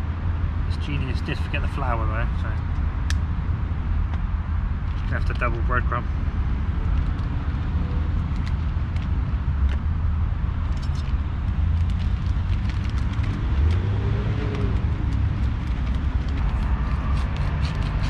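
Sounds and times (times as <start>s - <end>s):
low rumble of road traffic: 0.0s - 18.0s.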